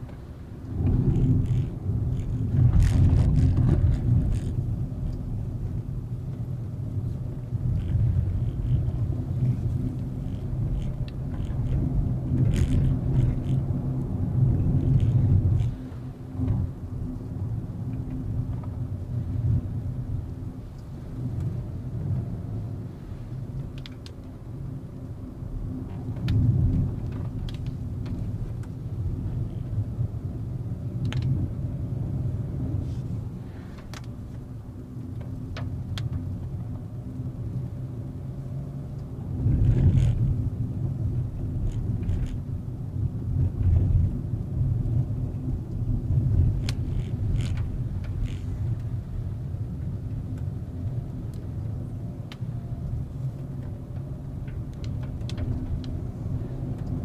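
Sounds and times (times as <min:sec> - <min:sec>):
car engine and road rumble: 0:00.0 - 0:57.0
light clicks and knocks: 0:53.4 - 0:57.0.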